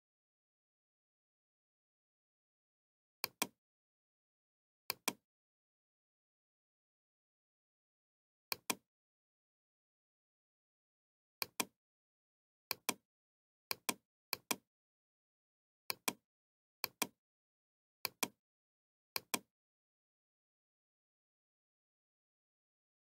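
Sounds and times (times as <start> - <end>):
computer mouse clicking: 3.2 - 3.6, 4.9 - 5.2, 8.5 - 8.8, 13.7 - 14.6, 16.8 - 17.2, 18.0 - 18.4, 19.2 - 19.5.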